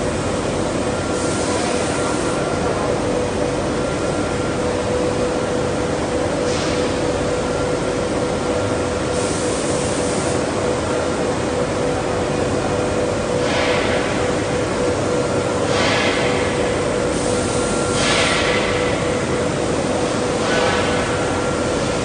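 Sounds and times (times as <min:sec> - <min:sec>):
constant hum: 0:00.0 - 0:22.0
rushing machinery noise: 0:00.0 - 0:22.0.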